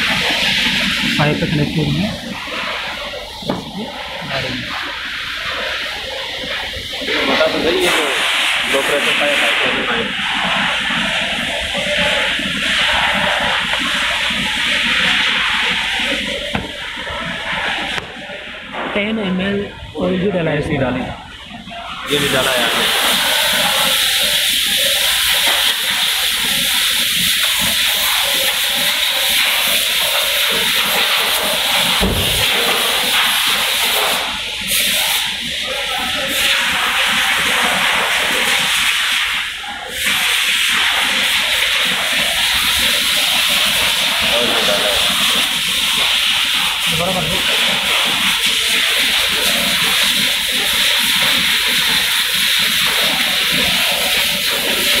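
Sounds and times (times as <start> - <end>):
refrigerant gas hissing: 0.0 - 20.2, 21.1 - 55.0
low thump: 32.0 - 32.5.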